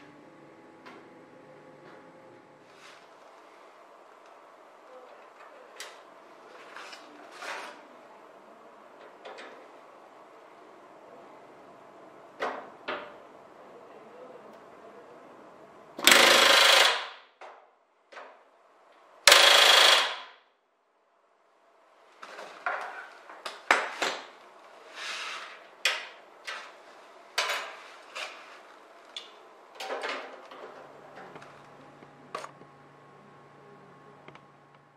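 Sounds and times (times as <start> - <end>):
pneumatic rivet gun bursts: 16.0 - 17.2, 19.3 - 20.4.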